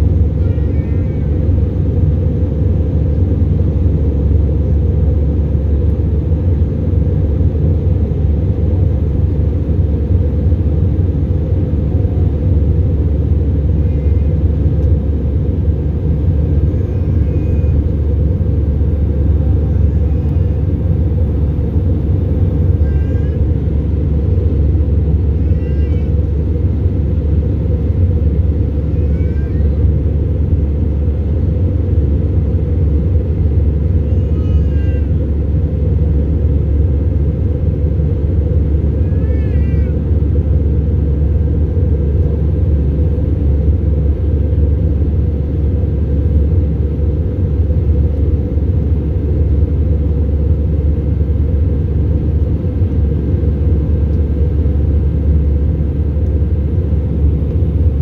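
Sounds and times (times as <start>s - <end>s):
aircraft cabin engine rumble: 0.0s - 58.0s
faint high-pitched cries: 0.2s - 1.6s, 13.5s - 14.6s, 16.5s - 18.4s, 19.0s - 20.9s, 22.6s - 23.8s, 25.2s - 26.5s, 28.5s - 30.1s, 33.7s - 35.5s, 38.8s - 40.4s.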